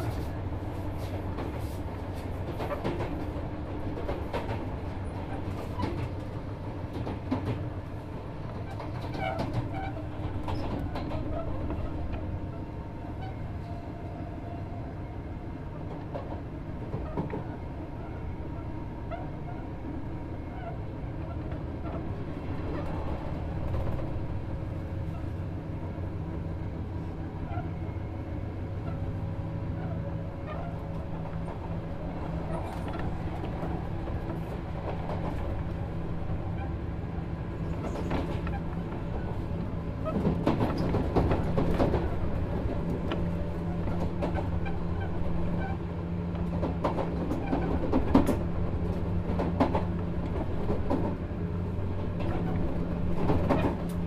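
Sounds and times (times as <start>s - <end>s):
wheel-on-rail rumble: 0.0s - 14.6s, 15.7s - 54.0s
clatter over rail joints: 1.3s - 7.8s, 8.4s - 12.2s, 29.8s - 35.8s, 37.6s - 51.2s, 52.0s - 54.0s.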